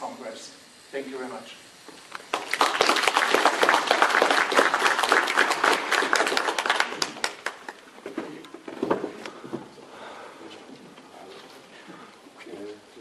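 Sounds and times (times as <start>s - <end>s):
audience applauding: 2.1s - 8.0s.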